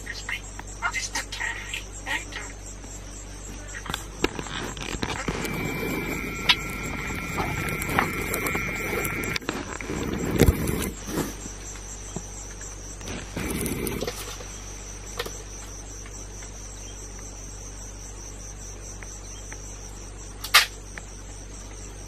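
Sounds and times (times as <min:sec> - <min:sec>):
insects trilling: 0:00.0 - 0:22.0
rustling: 0:03.9 - 0:11.8.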